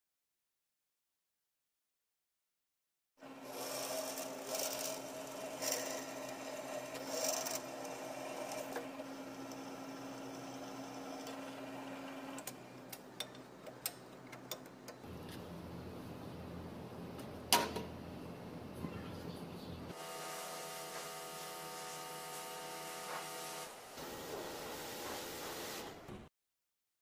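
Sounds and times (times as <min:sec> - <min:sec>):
drill press motor humming: 0:03.2 - 0:12.6
drill bit scraping steel: 0:03.5 - 0:11.5.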